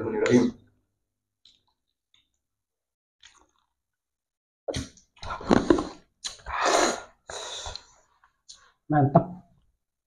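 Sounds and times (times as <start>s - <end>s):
people sipping and swallowing: 4.7s - 8.7s.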